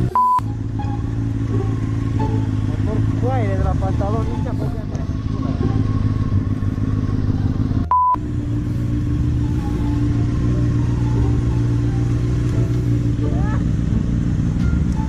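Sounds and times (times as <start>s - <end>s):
motorcycle engine running: 0.0s - 15.0s
censor beep: 0.1s - 0.5s, 7.9s - 8.2s.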